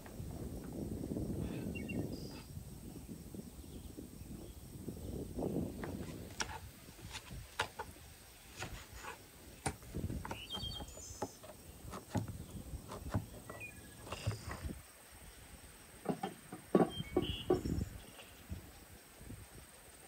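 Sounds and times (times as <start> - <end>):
bird chirps: 10.2 - 11.8, 13.3 - 14.6, 16.8 - 18.6.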